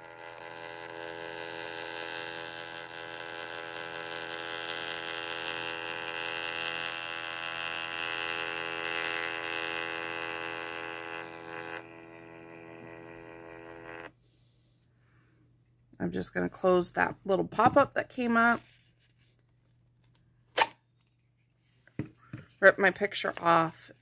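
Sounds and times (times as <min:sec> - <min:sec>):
thermal printer whining hum: 0:00.0 - 0:14.2.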